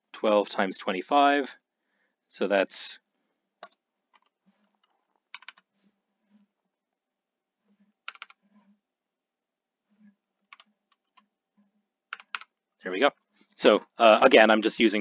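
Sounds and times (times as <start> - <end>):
computer keyboard keystrokes: 5.4 - 5.6, 8.1 - 8.4, 12.1 - 12.5.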